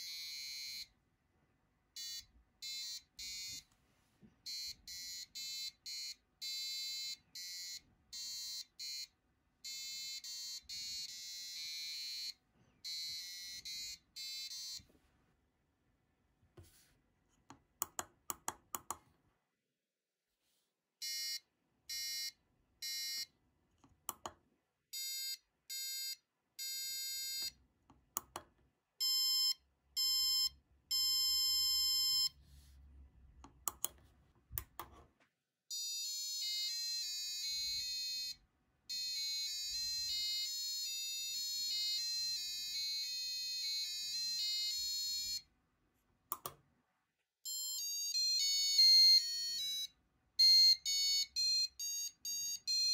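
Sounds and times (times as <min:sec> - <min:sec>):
buzzer beeping electronic notes: 0:00.0 - 0:00.9, 0:04.5 - 0:14.8, 0:25.0 - 0:27.5, 0:29.0 - 0:32.4.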